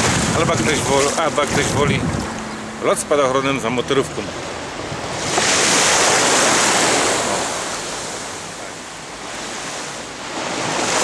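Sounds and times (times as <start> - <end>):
surf breaking on stony beach: 0.0 - 2.4, 5.0 - 11.0.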